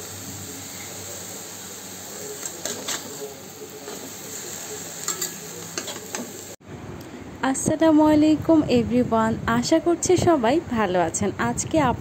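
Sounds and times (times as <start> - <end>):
leaves sizzling in oil: 0.0 - 6.6.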